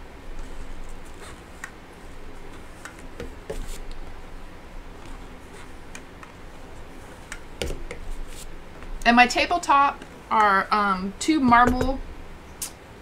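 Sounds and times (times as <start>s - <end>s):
roller rolling clay: 4.9s - 9.0s.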